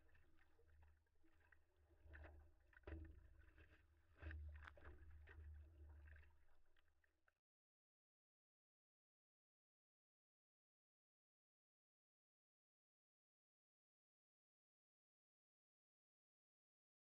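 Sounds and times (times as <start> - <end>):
water splashing against paddleboard: 0.0 - 6.8.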